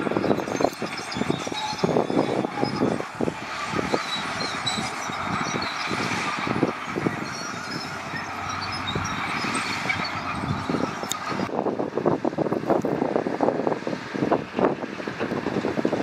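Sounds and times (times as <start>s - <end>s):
heavy machinery din: 0.0s - 11.5s.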